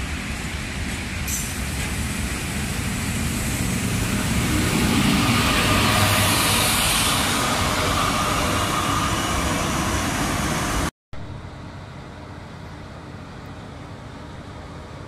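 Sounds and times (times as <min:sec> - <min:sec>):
train wheels rushing past: 0:00.0 - 0:10.9.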